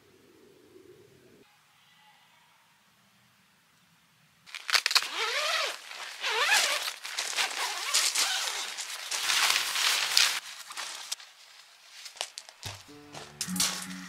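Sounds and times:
tent fabric rustling: 0:04.5 - 0:13.8.

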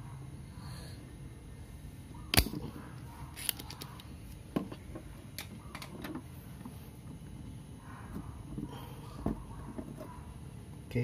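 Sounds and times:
desoldering pump snap: 0:02.3 - 0:02.6.

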